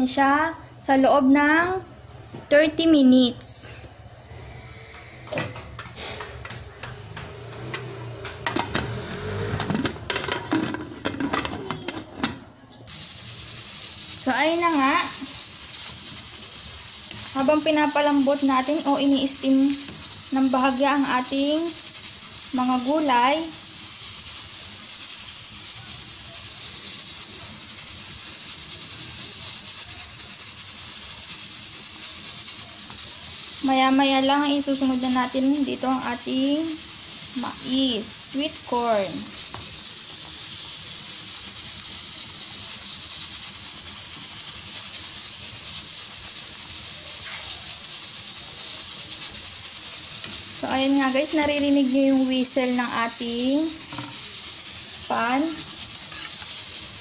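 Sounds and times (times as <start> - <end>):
steam hissing from pots: 0.0 - 57.0
metal scrapes: 4.2 - 12.4, 50.2 - 57.0.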